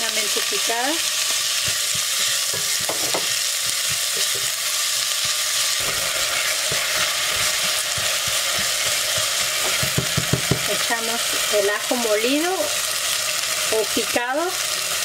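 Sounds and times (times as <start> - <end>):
onion sizzling in hot oil: 0.0 - 15.0
spoon knocking against pot: 1.6 - 4.5, 7.9 - 10.7.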